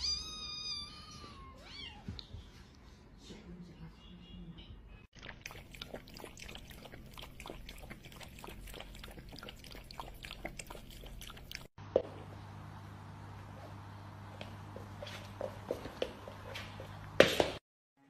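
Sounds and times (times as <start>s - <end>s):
cats lapping milk: 5.2s - 11.7s.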